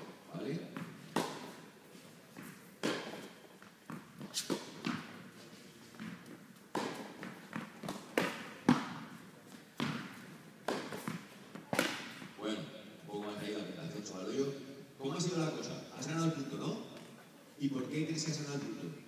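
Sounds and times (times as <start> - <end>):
ball bouncing: 0.8 - 1.6, 2.4 - 5.2, 6.0 - 9.2, 9.8 - 12.3
racket hitting ball: 0.8 - 1.7, 2.3 - 5.3, 6.0 - 12.3.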